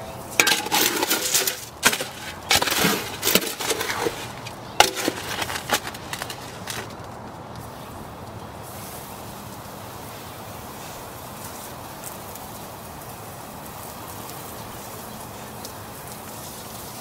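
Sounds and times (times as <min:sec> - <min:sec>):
shovel scraping concrete mix: 0:00.3 - 0:07.0
shovel ringing on metal tub: 0:00.4 - 0:06.9.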